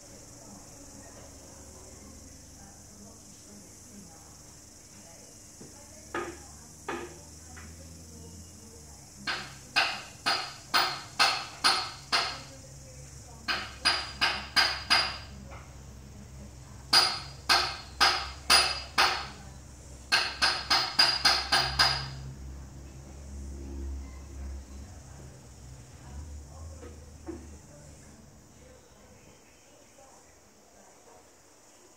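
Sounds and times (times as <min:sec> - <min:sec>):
sharp ringing knocks: 0:13.4 - 0:15.3, 0:16.9 - 0:19.5, 0:20.1 - 0:22.3.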